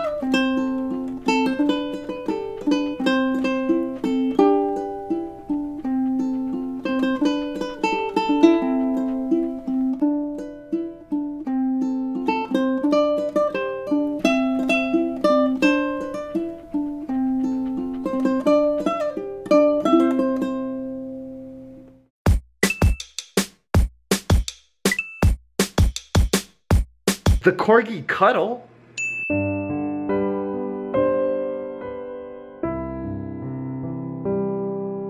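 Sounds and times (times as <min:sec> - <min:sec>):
ukulele playing: 0:00.0 - 0:21.4.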